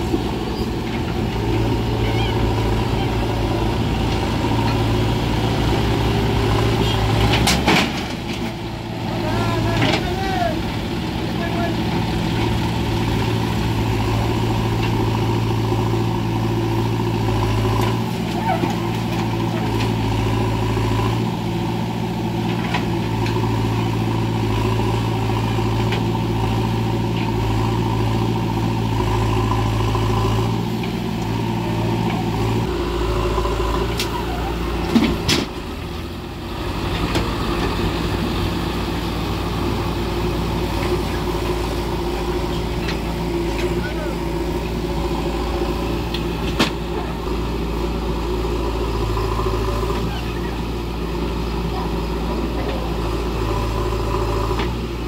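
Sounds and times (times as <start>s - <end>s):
diesel engines running: 0.0s - 55.0s.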